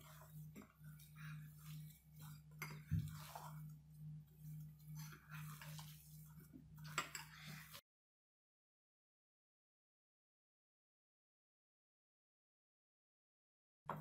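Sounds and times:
hand squishing soft mash: 0.0 - 7.8
steady low hum: 0.0 - 7.8.

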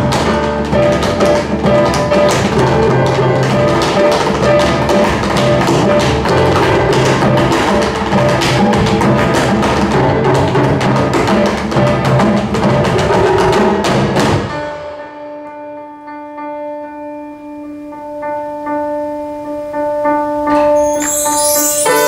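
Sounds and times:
tap dancing: 0.0 - 14.3
taiko drums and hand percussion: 0.0 - 14.5, 20.6 - 22.0
held ringing chord: 20.6 - 22.0.

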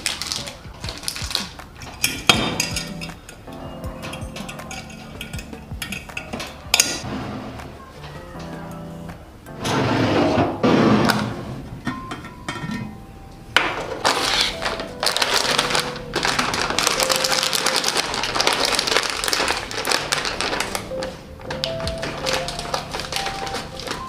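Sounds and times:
plastic bag crinkling: 0.0 - 2.8, 13.9 - 24.0
scissors cutting plastic: 0.0 - 3.4, 14.0 - 24.0.

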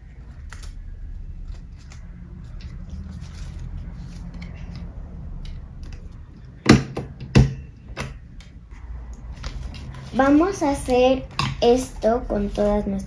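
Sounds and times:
paper rustling and clicks: 0.2 - 6.1.

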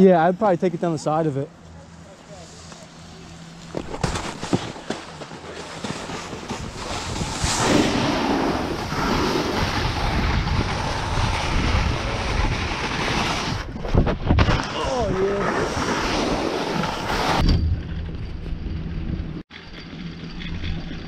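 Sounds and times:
snowboard scraping on snow: 2.2 - 17.4
wind rushing over microphone: 6.4 - 19.4.

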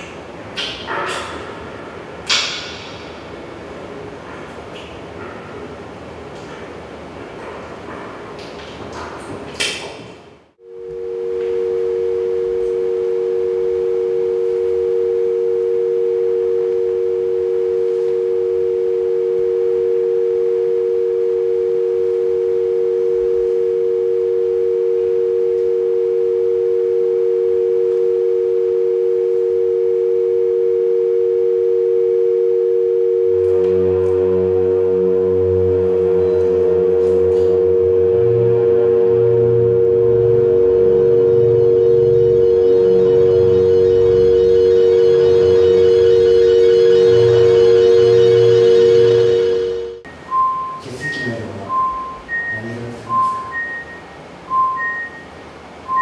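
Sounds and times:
electronic drone music: 10.6 - 50.5
low hum: 10.6 - 56.0.

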